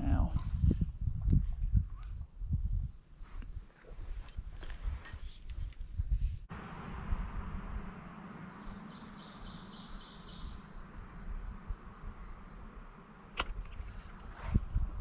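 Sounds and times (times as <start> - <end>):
high insect drone: 0.0 - 15.0
bird singing repeated notes: 8.4 - 10.7.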